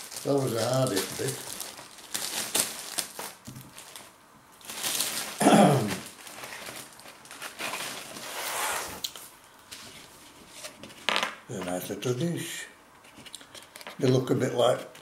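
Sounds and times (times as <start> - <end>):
plastic bag crinkling: 0.0 - 9.3.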